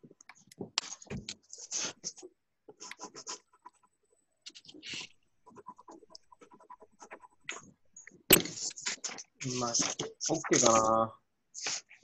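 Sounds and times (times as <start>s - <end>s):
pencil scratching on paper: 1.5s - 7.8s, 8.4s - 10.9s.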